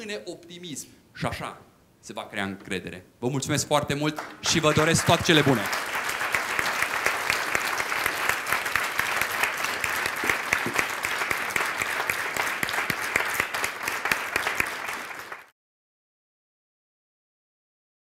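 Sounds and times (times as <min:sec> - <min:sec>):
audience applause: 0:04.2 - 0:15.5.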